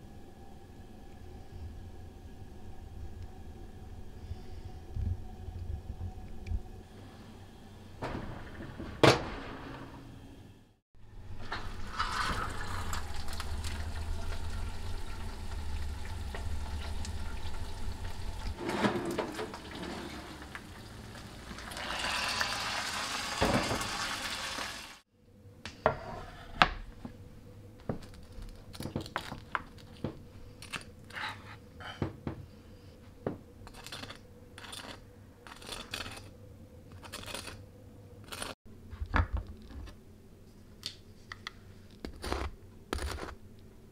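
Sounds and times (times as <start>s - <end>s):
steady hum: 0.0s - 19.0s
oven door shutting: 8.0s - 10.2s, 18.6s - 20.3s
meat sizzling: 11.6s - 18.6s, 19.6s - 25.0s.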